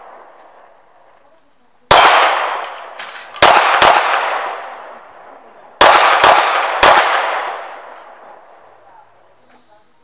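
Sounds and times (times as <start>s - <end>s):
pistol shots echoing: 0.0s - 0.8s, 1.9s - 8.8s.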